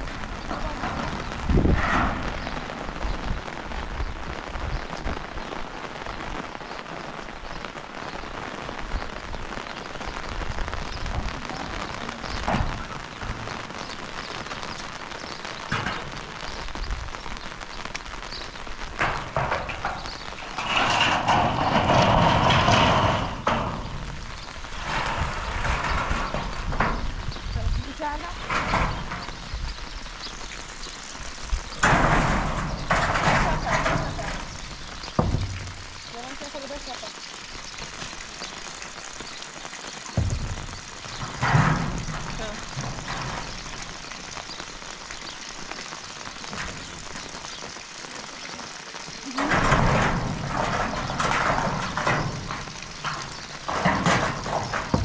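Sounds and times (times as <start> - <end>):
raindrop ticks: 0.0 - 55.0
steady rain falling: 0.0 - 55.0.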